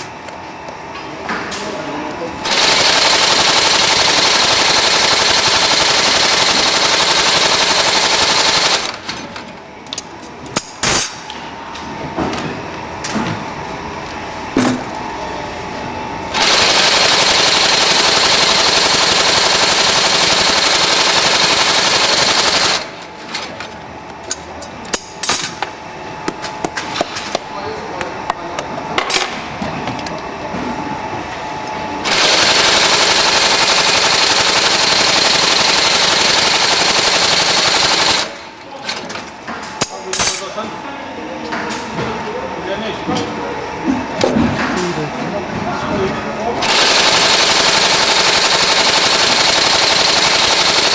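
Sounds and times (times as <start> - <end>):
sewing machine rattling: 2.4 - 9.1, 16.4 - 22.9, 32.1 - 38.4, 46.6 - 50.9.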